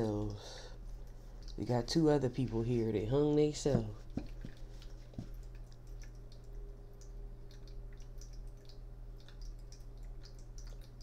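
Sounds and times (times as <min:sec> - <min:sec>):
steady low hum: 0:00.0 - 0:11.0
small clicks and ticks: 0:04.2 - 0:11.0.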